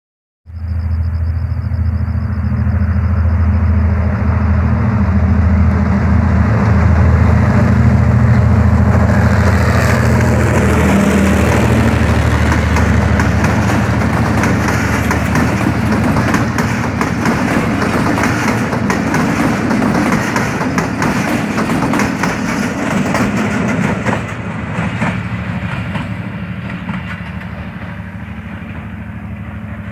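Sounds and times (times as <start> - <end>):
diesel locomotive engine drone: 0.5 - 29.9
train coaches clattering over rail joints: 10.5 - 29.9.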